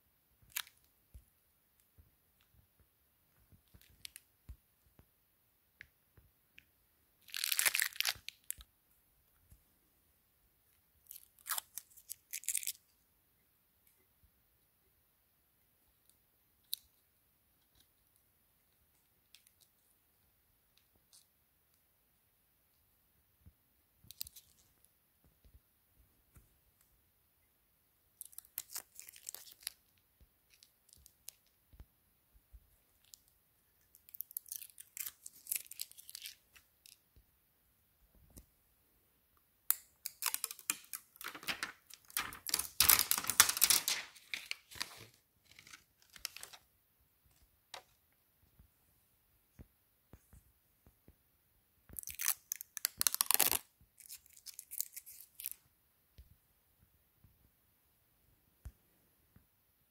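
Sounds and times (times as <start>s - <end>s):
packaging tearing: 7.3s - 8.5s, 28.2s - 29.8s, 40.0s - 46.6s, 52.0s - 55.6s.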